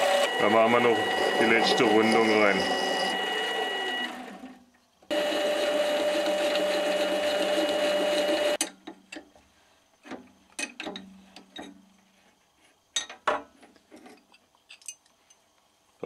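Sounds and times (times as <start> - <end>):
lathe motor whine: 0.0 - 8.6
metal clicks and clinks: 14.3 - 15.4.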